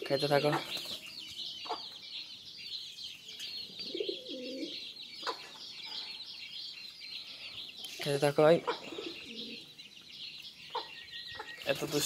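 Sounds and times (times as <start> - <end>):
birds chirping: 0.0 - 12.0
low bird call: 3.4 - 8.0, 8.6 - 11.8.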